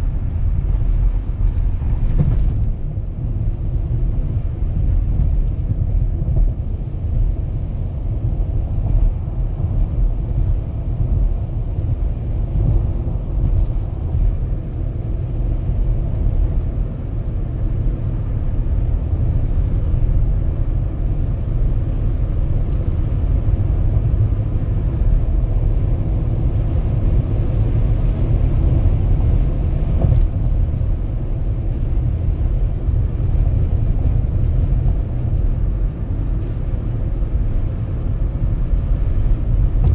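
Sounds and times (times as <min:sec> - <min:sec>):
car tyre and engine rumble: 0:00.0 - 0:39.9.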